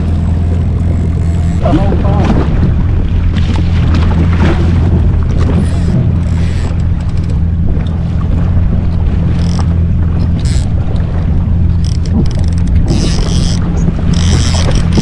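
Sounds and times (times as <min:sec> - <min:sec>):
jet ski engine idling: 0:00.0 - 0:15.0
wind buffeting microphone: 0:00.0 - 0:15.0.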